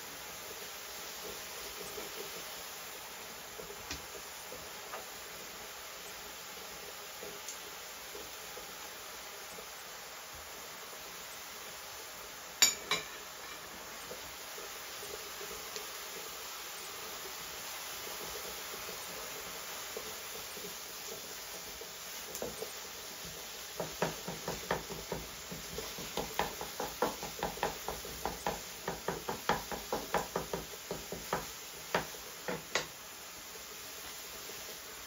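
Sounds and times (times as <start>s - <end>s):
low steady hiss: 0.0s - 35.0s
spatula scraping frying pan: 23.8s - 32.9s.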